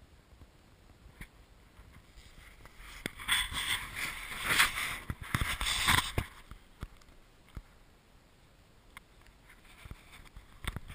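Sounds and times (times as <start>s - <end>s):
snow crunching: 1.9s - 6.4s
camera handling rustling: 2.1s - 7.2s.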